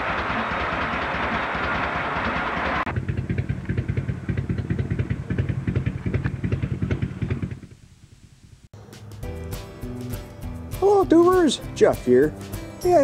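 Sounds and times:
motorcycle engine idling: 0.0 - 9.4.

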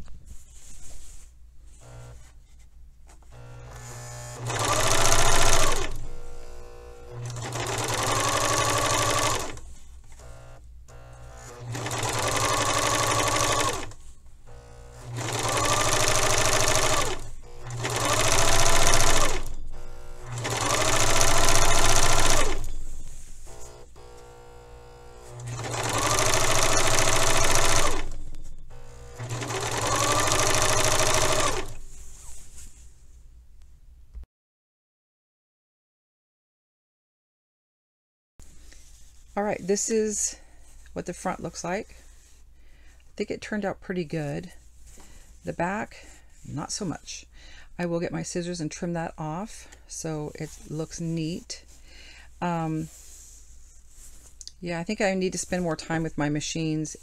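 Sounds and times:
serger motor whining: 3.3 - 31.8.

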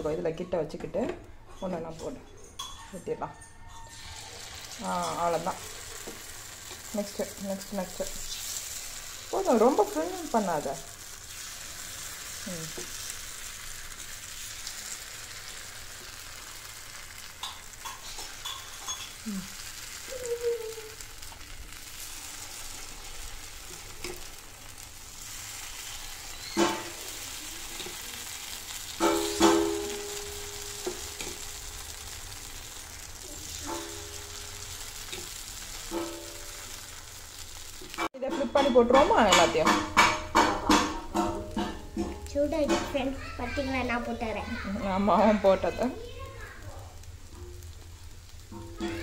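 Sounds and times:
steel ladle clinking on metal: 1.6 - 4.0
batter sizzling in hot oil: 3.6 - 49.0.

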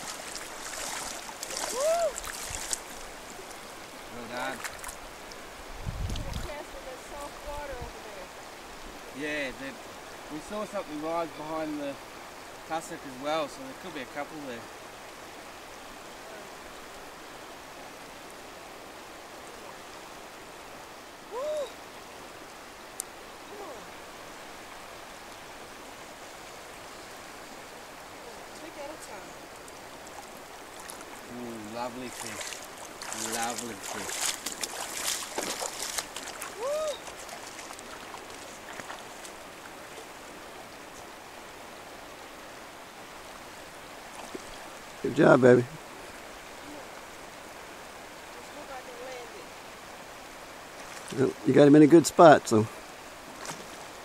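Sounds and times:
shallow river flowing: 0.0 - 54.0
faint ticks: 22.9 - 23.2.

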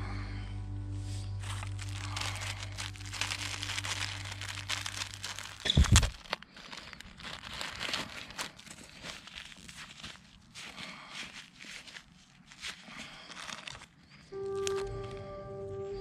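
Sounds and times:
plastic wrapper crinkling: 1.4 - 15.3.

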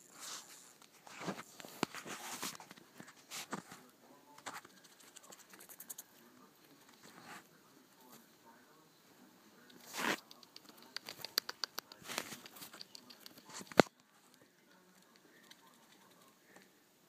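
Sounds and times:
rat claws scratching on mat: 4.4 - 7.5, 9.7 - 13.9.

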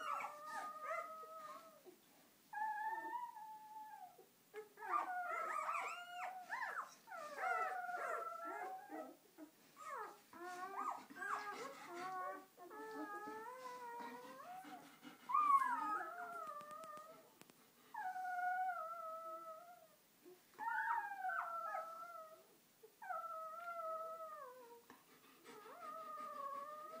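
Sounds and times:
puppies crying: 4.8 - 9.2.

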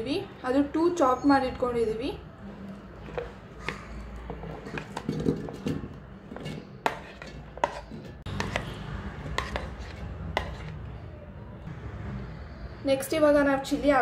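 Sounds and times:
kitchenware knocks and clicks: 3.1 - 8.7.

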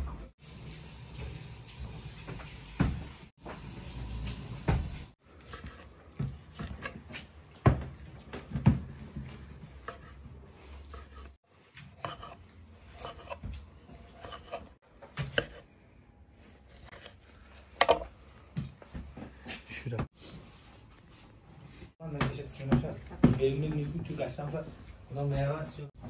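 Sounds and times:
knife slicing tomatoes: 5.3 - 7.4, 9.2 - 15.7, 16.6 - 18.1.

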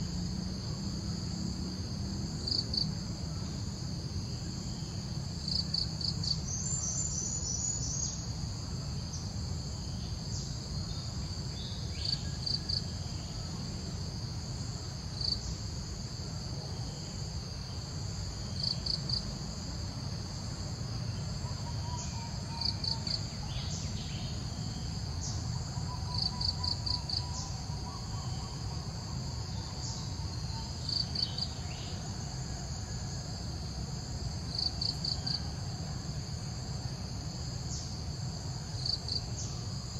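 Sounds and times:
insects humming: 0.0 - 39.9
sharp insect chirps: 21.0 - 32.3.

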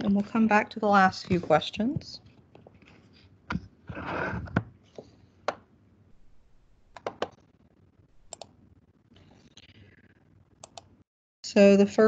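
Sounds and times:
computer mouse clicks: 8.2 - 8.5, 10.6 - 10.9.

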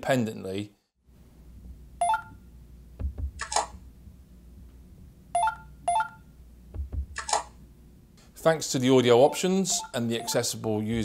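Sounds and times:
payment terminal key beeps: 2.0 - 2.4, 5.4 - 6.2, 9.2 - 10.5.

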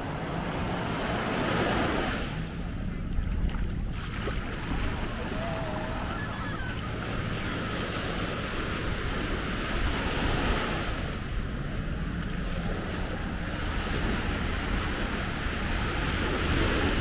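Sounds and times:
sea surf washing onto beach: 0.0 - 17.0
wind rumbling on microphone: 0.0 - 17.0.

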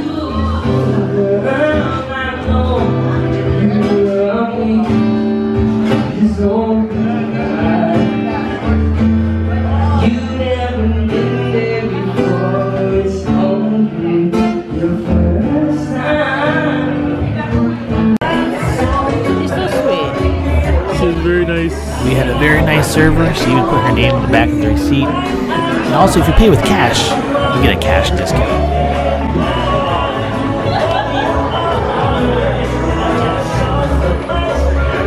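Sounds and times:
acoustic guitar: 0.0 - 35.0
man singing: 21.1 - 28.7.

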